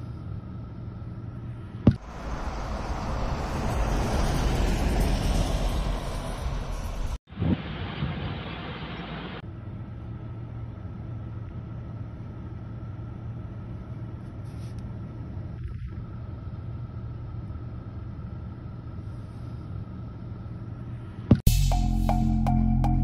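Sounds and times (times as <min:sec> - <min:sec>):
faint steady hum: 0:00.0 - 0:02.8, 0:07.4 - 0:21.4
low background rumble: 0:00.0 - 0:21.4
music with regular beat: 0:21.5 - 0:23.0.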